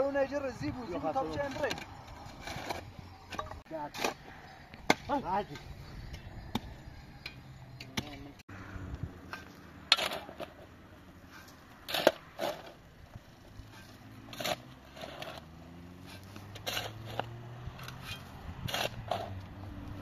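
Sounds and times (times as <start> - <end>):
scrape of soil and stones: 0.8 - 6.7, 9.2 - 20.0.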